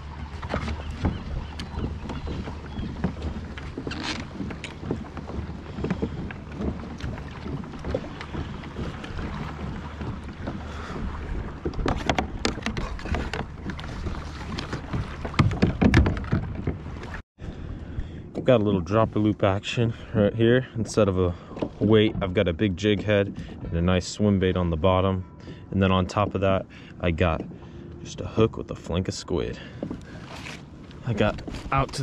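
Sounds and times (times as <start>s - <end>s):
water lapping against kayak hull: 0.0s - 32.0s
knocks and clicks of gear handling: 11.6s - 17.1s.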